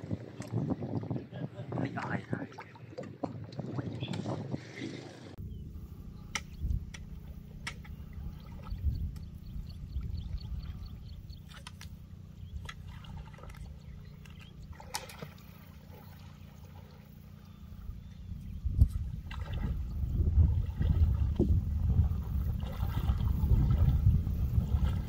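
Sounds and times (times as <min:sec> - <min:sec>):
water splashing and trickling: 0:00.0 - 0:05.4, 0:06.8 - 0:25.0
low rumble: 0:17.8 - 0:25.0.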